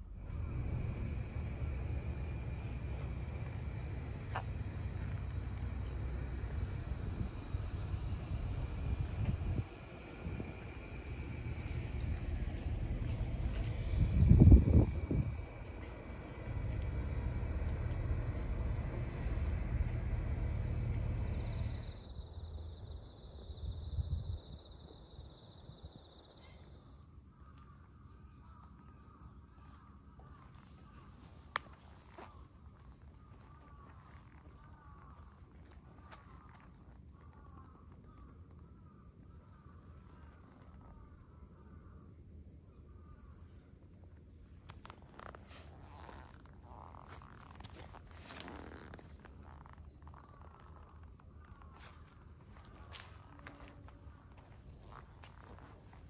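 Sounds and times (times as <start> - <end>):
low rumble: 0.0 - 26.0
insects singing: 0.3 - 56.0.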